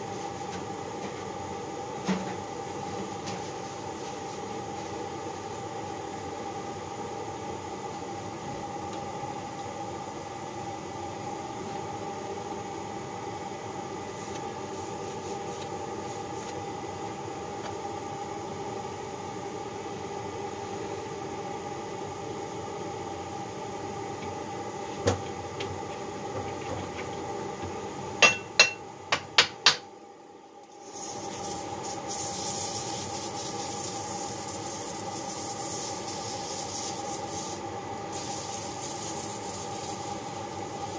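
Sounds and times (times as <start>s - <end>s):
gas torch hissing: 30.7s - 40.9s.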